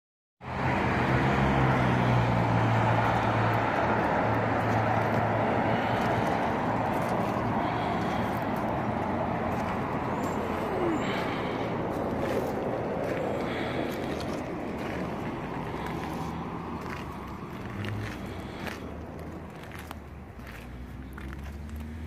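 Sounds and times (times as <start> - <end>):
vehicle engine running: 1.7 - 22.0.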